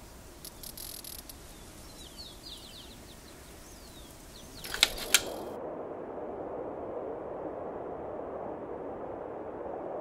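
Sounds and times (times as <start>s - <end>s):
faint outdoor ambience: 0.0s - 10.0s
high bird chirps: 0.4s - 5.5s
sharp click: 4.6s - 5.5s.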